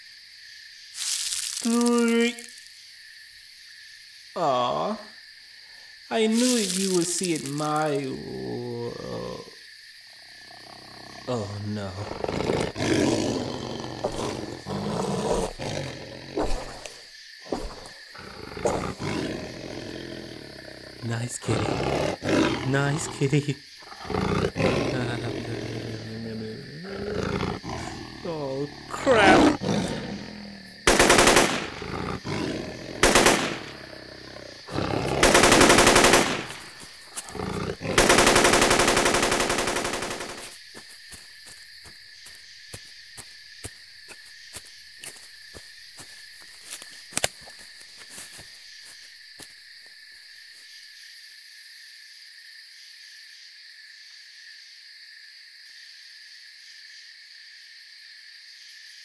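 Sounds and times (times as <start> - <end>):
crickets chirring: 0.0 - 59.0
big cat roaring: 7.8 - 9.6, 10.3 - 40.4.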